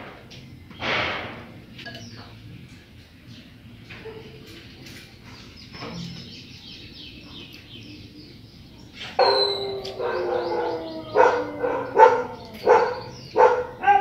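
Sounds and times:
birds chirping faintly: 1.6 - 14.0
dog barking: 4.0 - 4.5, 9.2 - 14.0
dog howling: 9.2 - 14.0.

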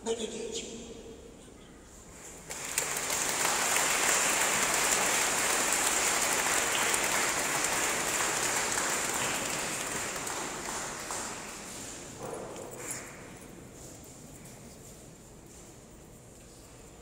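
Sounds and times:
congregation applauding: 2.4 - 12.2.

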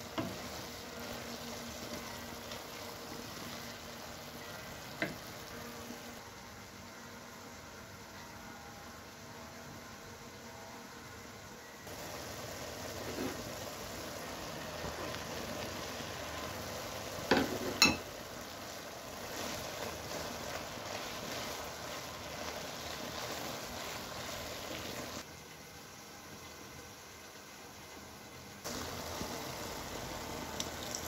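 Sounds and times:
food sizzling in oil: 0.0 - 8.2, 11.8 - 31.0
wooden spoon stirring: 14.7 - 25.2.

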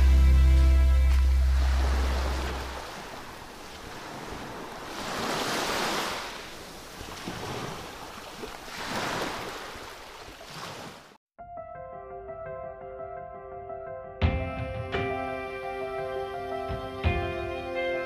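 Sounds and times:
small waves washing on shore: 0.0 - 11.2.

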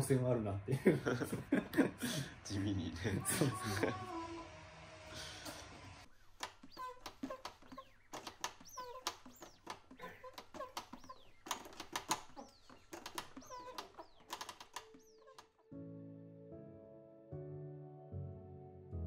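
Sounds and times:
record scratching on turntable: 6.1 - 15.1.

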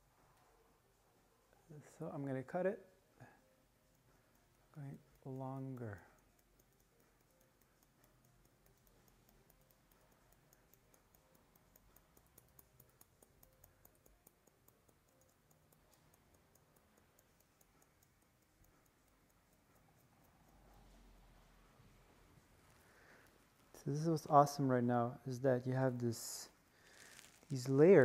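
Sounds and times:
scissors snipping hair: 26.8 - 28.0.

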